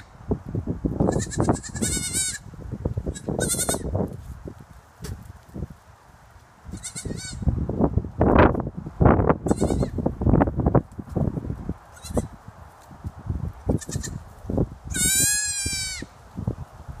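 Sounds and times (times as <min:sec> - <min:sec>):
goat kids bleating: 0:01.0 - 0:02.5, 0:03.1 - 0:03.9, 0:06.7 - 0:07.5, 0:09.4 - 0:10.0, 0:11.9 - 0:12.4, 0:13.7 - 0:14.3, 0:14.9 - 0:16.2.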